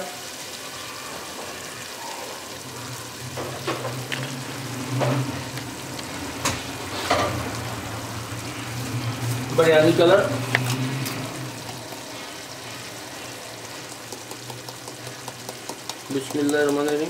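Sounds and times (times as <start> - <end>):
gravy sizzling and bubbling: 0.0 - 17.0.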